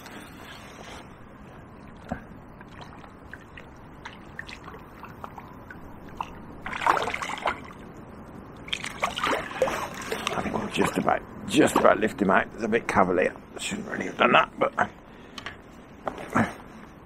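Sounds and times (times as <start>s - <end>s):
fish splashing at water surface: 2.7s - 7.8s.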